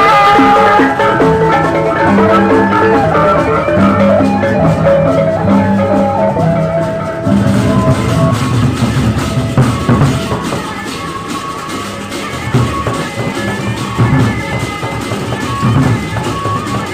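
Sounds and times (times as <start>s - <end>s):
kettle-gong melody: 0.0s - 16.9s
low gong and drum tones: 0.0s - 16.9s.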